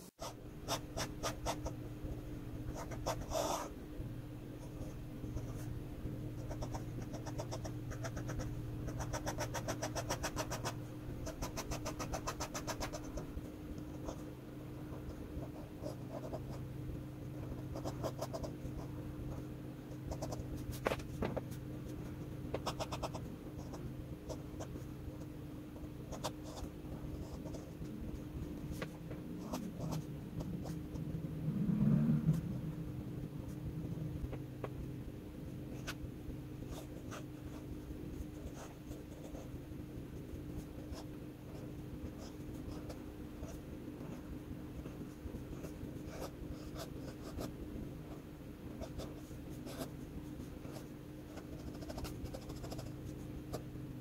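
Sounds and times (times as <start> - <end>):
steady low hum: 0.0 - 54.0
pen nib scratching on paper: 0.1 - 1.8, 2.7 - 3.7, 6.4 - 13.3, 22.5 - 24.8, 50.6 - 53.6
brief low rumble: 30.6 - 34.7.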